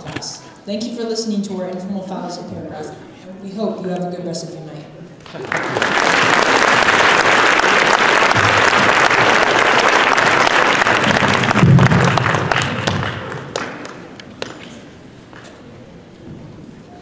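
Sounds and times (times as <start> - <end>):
audience applauding: 5.2 - 14.5.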